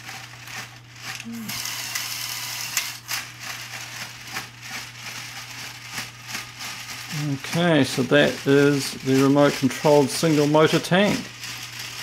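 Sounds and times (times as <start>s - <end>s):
toy motor and gears whirring: 0.0s - 12.0s.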